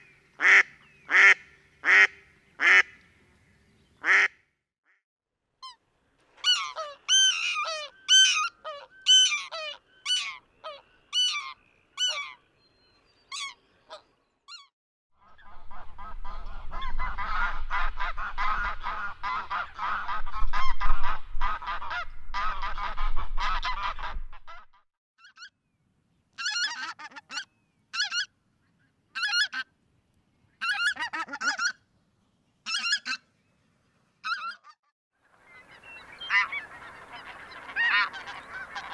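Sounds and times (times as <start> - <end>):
goose calling: 6.4 - 12.4, 13.3 - 25.5, 29.2 - 29.7, 30.6 - 31.8, 32.7 - 33.2, 35.5 - 38.9
flock of geese honking: 15.2 - 24.7, 35.4 - 38.9
goose short calls: 36.2 - 38.9.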